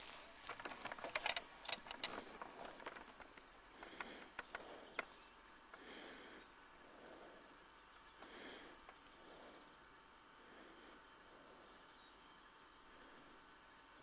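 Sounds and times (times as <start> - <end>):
clicks and rustles: 0.0 - 5.8
steady quiet hush: 0.0 - 14.0.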